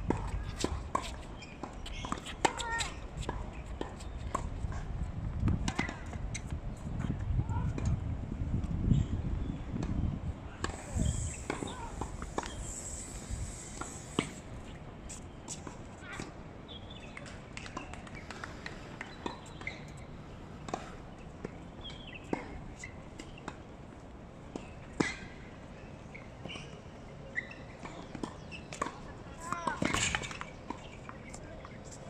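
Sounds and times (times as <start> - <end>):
tennis balls being hit: 10.6 - 14.5.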